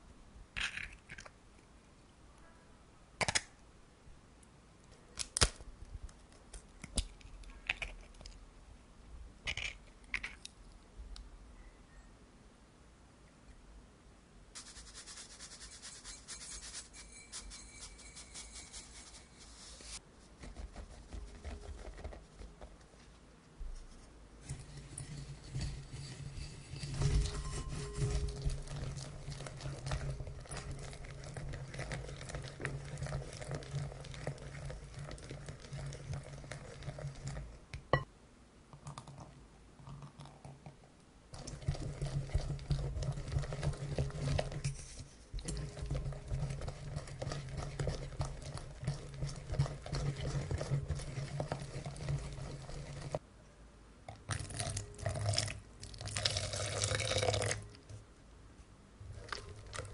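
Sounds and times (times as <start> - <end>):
whisk scraping glass bowl: 14.6 - 20.0, 24.4 - 37.5, 41.4 - 53.2
dry ingredients pattering: 14.6 - 22.7.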